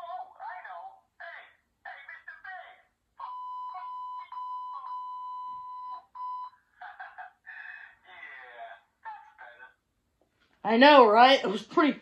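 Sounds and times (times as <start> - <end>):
high-pitched censor beep: 3.2 - 6.6.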